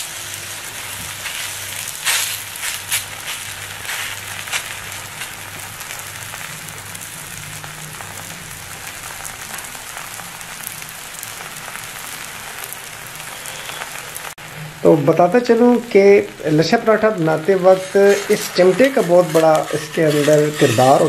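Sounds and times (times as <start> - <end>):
dough sizzling in hot oil: 0.0 - 21.0.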